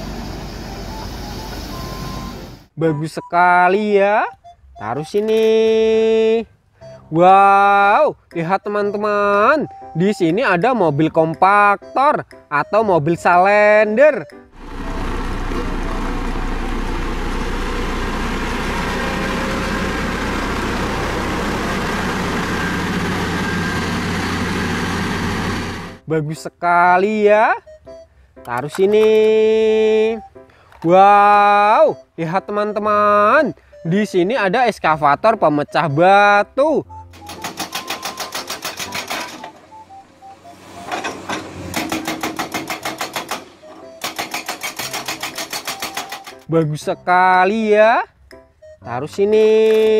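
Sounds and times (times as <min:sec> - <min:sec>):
road roller diesel engine running: 0:00.0 - 0:02.7, 0:14.5 - 0:26.0, 0:36.9 - 0:46.5
descending beeping tune: 0:00.9 - 0:05.4, 0:06.8 - 0:07.8, 0:08.6 - 0:25.6, 0:31.5 - 0:41.7, 0:43.4 - 0:44.2, 0:48.6 - 0:49.6
hydraulic rock breaker hammering: 0:37.2 - 0:39.6, 0:41.0 - 0:46.5.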